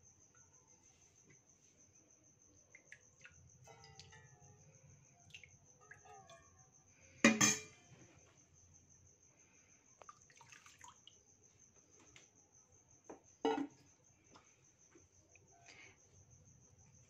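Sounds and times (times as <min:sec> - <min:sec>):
cricket trilling: 0:00.0 - 0:17.0
loud metal clank with ring: 0:07.3 - 0:07.8
saucepan and spoon clinking: 0:07.3 - 0:07.8.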